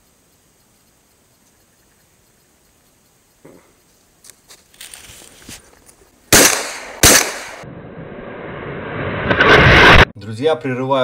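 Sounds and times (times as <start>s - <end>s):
steady hiss: 0.0s - 6.9s
shotgun shots: 6.3s - 7.6s.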